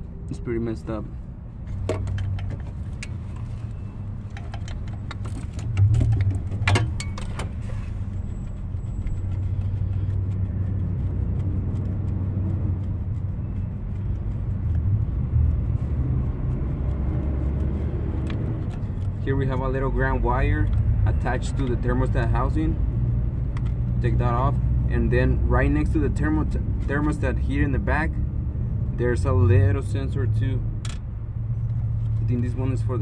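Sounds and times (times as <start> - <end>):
steady low rumble: 0.0 - 33.0.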